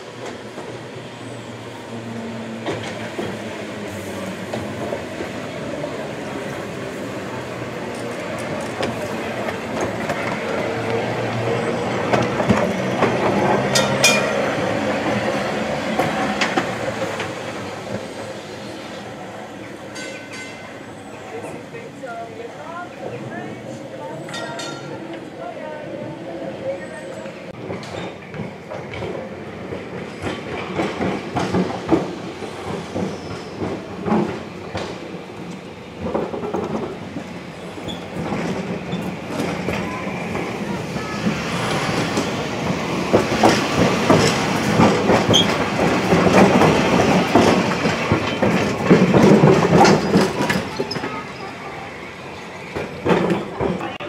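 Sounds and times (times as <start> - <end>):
tram wheels clicking: 0.0 - 20.7, 27.2 - 54.0
tram wheels rumbling on track: 0.0 - 54.0.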